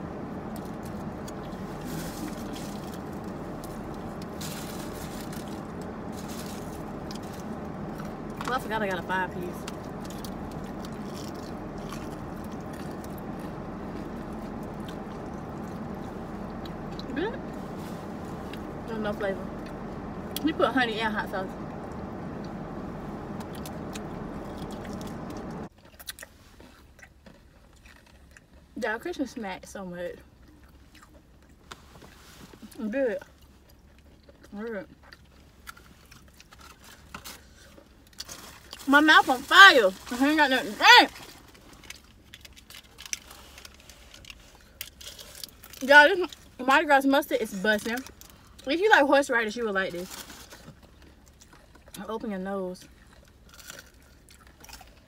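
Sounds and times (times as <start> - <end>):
low car cabin hum: 0.0 - 25.7, 26.6 - 55.0
paper wrappers rustling: 1.6 - 8.2
people chewing and lip-smacking: 23.3 - 28.7.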